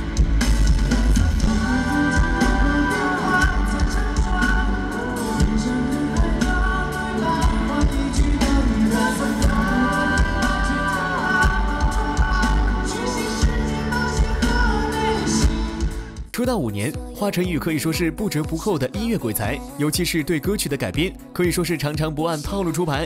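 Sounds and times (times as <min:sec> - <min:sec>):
band backing with drum beat: 0:00.0 - 0:16.6
man singing pop-rock: 0:00.7 - 0:21.0.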